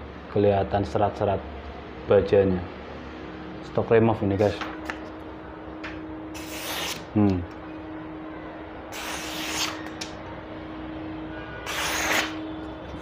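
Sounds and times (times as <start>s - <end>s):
knife slicing paper: 6.4s - 7.0s, 8.9s - 10.1s, 11.6s - 12.4s.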